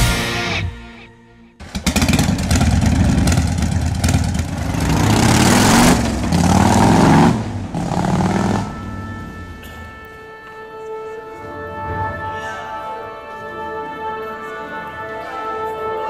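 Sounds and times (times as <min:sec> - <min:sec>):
motorcycle engine revving: 0:01.6 - 0:09.7.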